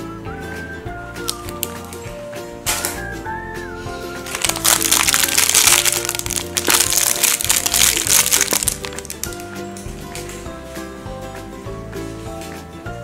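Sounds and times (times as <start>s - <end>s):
background music: 0.0s - 13.0s
plastic packaging crinkling: 1.3s - 2.0s, 4.3s - 9.5s.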